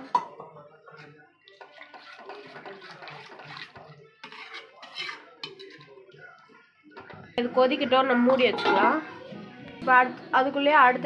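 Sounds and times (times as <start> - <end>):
ladle stirring sloshing liquid: 0.8 - 6.5.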